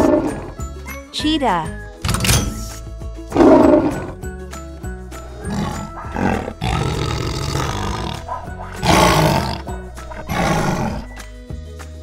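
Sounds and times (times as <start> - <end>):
big cat growling and roaring: 0.0 - 0.6, 3.3 - 4.2, 5.3 - 11.2
light background music: 0.0 - 12.0.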